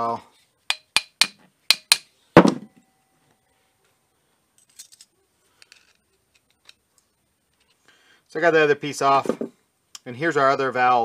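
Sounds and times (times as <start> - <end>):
faint metallic clicks and clinks: 4.6 - 7.8.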